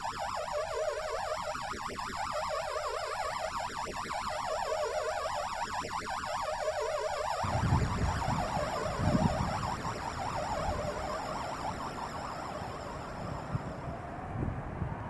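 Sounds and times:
warbling electronic tone: 6.3s - 13.8s.

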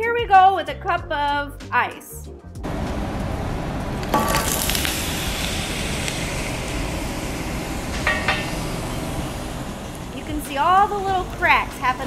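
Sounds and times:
ice hissing and sizzling: 3.8s - 12.0s
glass cracking: 4.0s - 5.2s
ice cubes clattering into glass bowl: 4.1s - 4.9s.

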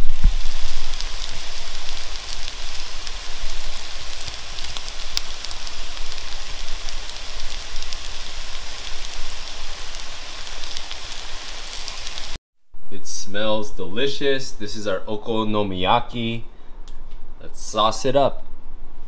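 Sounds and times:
batter sizzling in a hot pan: 0.0s - 12.4s.

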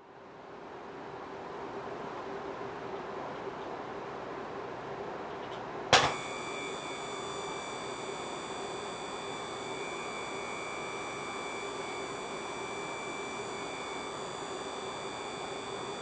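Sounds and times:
high-pitched electronic whine: 6.0s - 16.0s.

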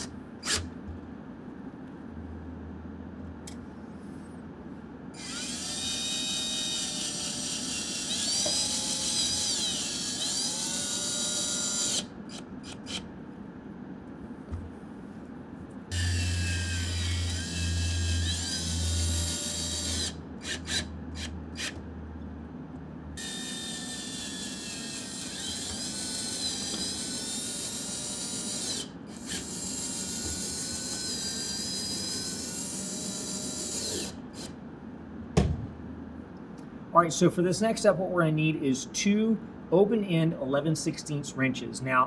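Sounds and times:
cordless drill motor whining: 5.2s - 13.0s, 15.9s - 21.3s, 23.2s - 34.5s.

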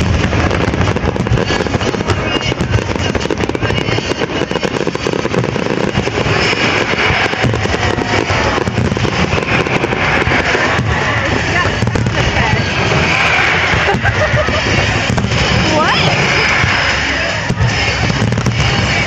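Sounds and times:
fireworks bangs and crackling: 0.0s - 19.0s.

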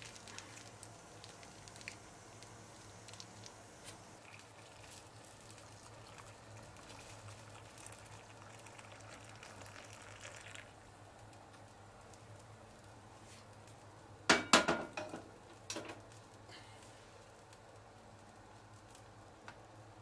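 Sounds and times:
water trickling into bowl: 4.2s - 10.8s.

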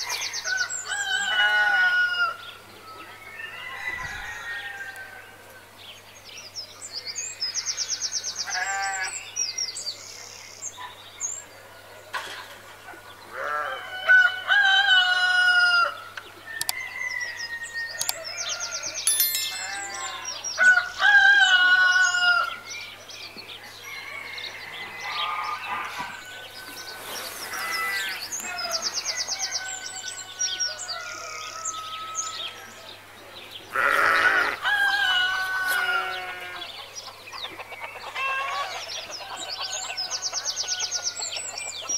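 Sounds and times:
roosters crowing: 0.4s - 2.4s, 3.5s - 5.3s, 13.3s - 22.6s, 23.7s - 32.6s, 33.7s - 36.8s
small birds chirping: 25.0s - 31.0s.

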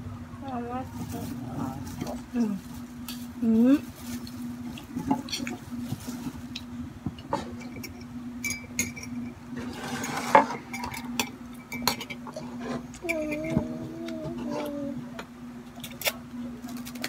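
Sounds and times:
steady hum: 0.0s - 17.0s
plastic wrapping rustle: 0.9s - 6.6s.

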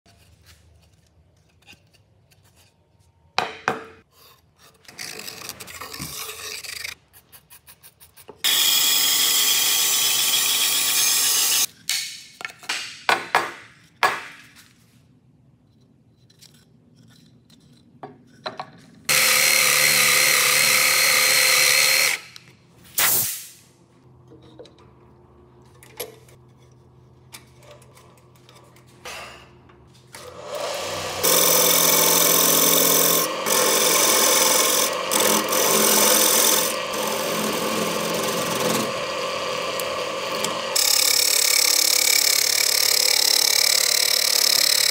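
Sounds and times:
bandsaw cutting wood: 8.4s - 11.7s, 19.1s - 22.4s, 30.2s - 44.9s
power tool running: 8.4s - 11.7s, 19.1s - 22.4s, 30.1s - 44.9s.

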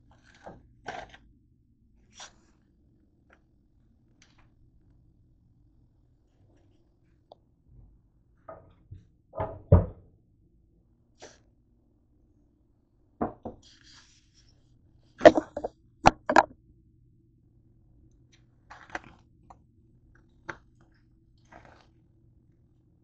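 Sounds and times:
knocks on hard countertop: 13.2s - 13.6s.

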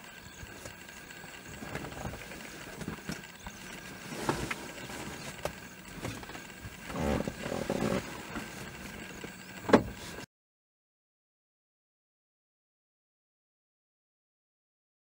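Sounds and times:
outdoor background noise: 0.0s - 10.3s.

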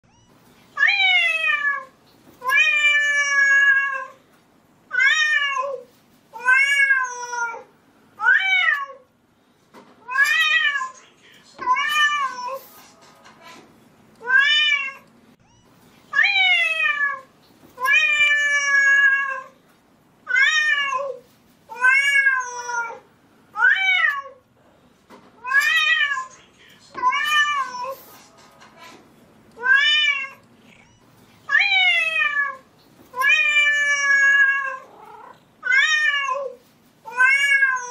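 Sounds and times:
cat meowing: 0.1s - 4.2s, 4.9s - 9.0s, 14.2s - 19.6s, 20.3s - 24.4s, 29.6s - 37.9s.

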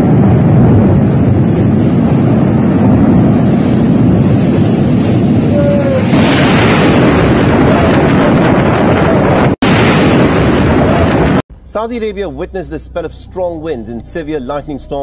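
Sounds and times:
strong wind buffeting microphone: 0.0s - 11.4s.

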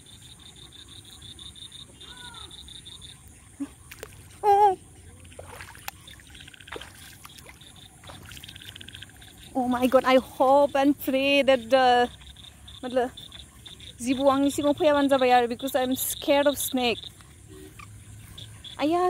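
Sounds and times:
insects chorus: 0.0s - 19.0s
pulsing frog calls: 0.0s - 19.0s
bare feet stepping through water and mud: 3.6s - 9.4s.

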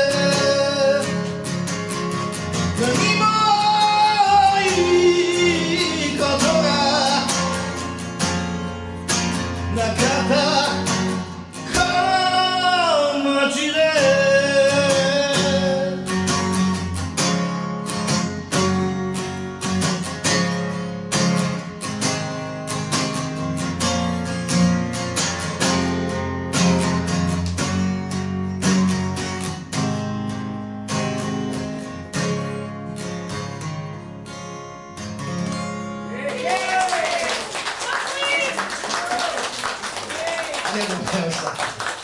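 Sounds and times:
man singing: 0.0s - 1.4s, 2.6s - 7.9s, 9.6s - 16.3s
strummed acoustic guitar: 0.0s - 36.4s.

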